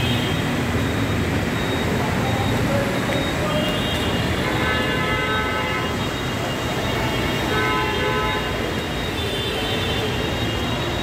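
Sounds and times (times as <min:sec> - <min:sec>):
heavy rain and floodwater: 0:00.0 - 0:11.0
traffic through water: 0:00.0 - 0:11.0
vehicle horns honking: 0:03.4 - 0:06.2, 0:06.9 - 0:10.6.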